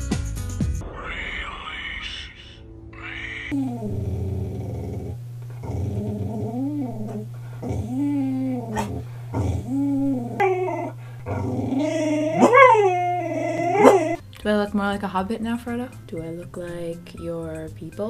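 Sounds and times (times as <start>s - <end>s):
dog vocalizing: 3.5s - 14.2s.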